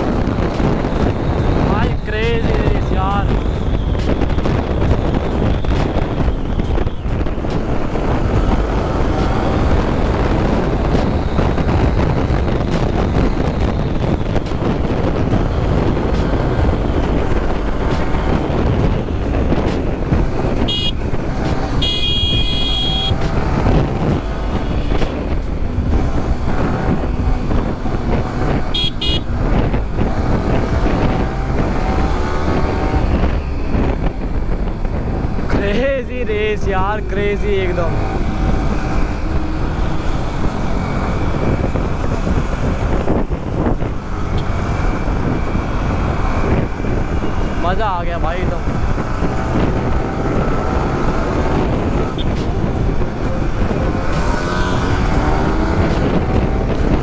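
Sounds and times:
motorcycle engine revving: 0:00.0 - 0:35.7, 0:37.2 - 0:57.0
wind and road noise: 0:00.0 - 0:57.0
vehicle horns honking: 0:20.6 - 0:21.1, 0:21.7 - 0:23.2, 0:28.7 - 0:29.4, 0:52.1 - 0:52.5.

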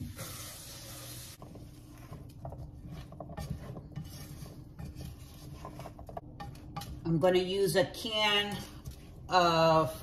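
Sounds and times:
spatula scraping a pot: 0:01.1 - 0:07.2.

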